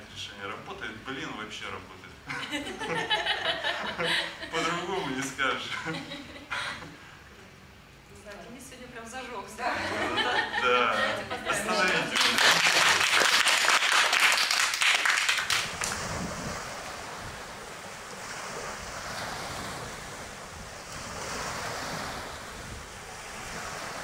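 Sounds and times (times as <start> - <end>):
sea waves washing: 9.6 - 24.0
hands clapping: 11.8 - 16.0
wind on microphone: 15.4 - 24.0.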